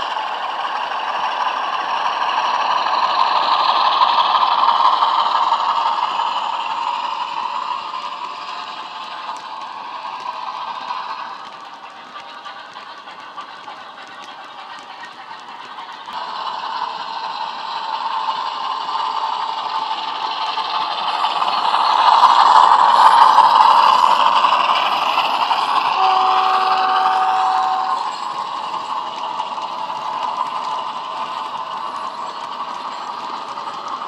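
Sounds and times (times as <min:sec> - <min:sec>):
model wagon wheels rattling: 0:08.0 - 0:17.1.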